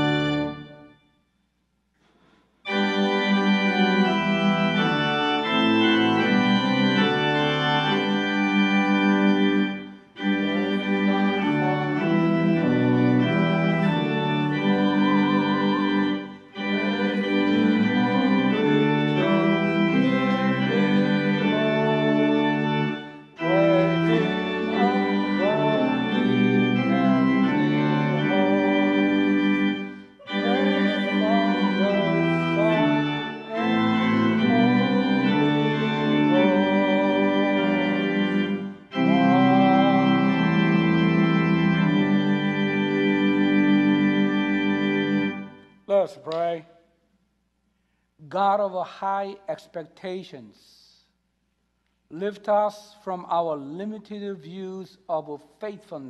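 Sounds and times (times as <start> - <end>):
church organ chords: 0.0 - 1.2, 2.6 - 50.8, 52.1 - 56.0.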